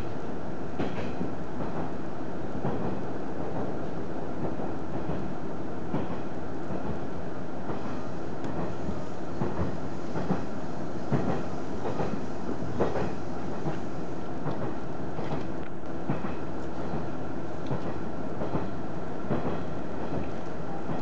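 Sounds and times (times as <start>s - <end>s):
railcar engine and wheels rumbling: 0.0s - 21.0s.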